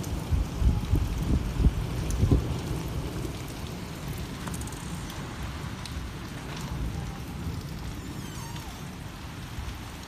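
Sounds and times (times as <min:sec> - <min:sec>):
steady rain falling: 0:00.0 - 0:10.0
faint drip ticks: 0:05.8 - 0:08.0.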